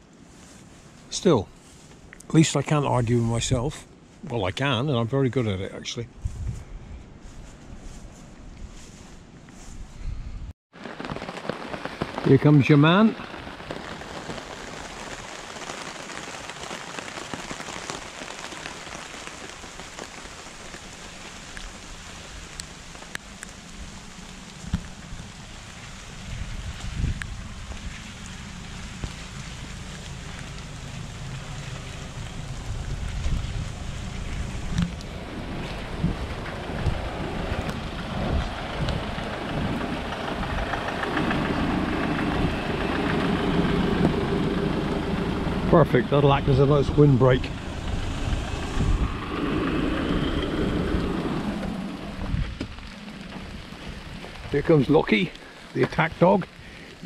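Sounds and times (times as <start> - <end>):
rain on trees and leaves: 0.0 - 5.8, 10.7 - 57.0
wind rumbling on microphone: 6.0 - 12.4, 13.1 - 57.0
low engine hum: 22.0 - 54.6.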